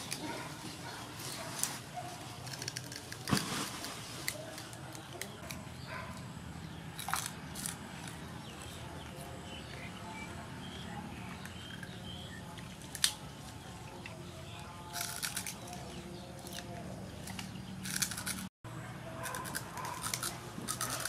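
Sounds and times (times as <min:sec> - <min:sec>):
crunchy chewing of pork skin: 0:07.0 - 0:08.2, 0:14.8 - 0:15.8, 0:16.4 - 0:18.5, 0:19.1 - 0:21.0.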